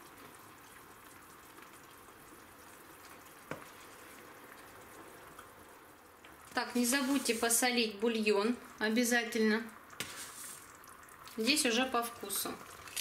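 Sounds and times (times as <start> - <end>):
sauce simmering in a frying pan: 0.0 - 13.0
wooden spatula stirring: 6.5 - 8.2, 10.0 - 11.5.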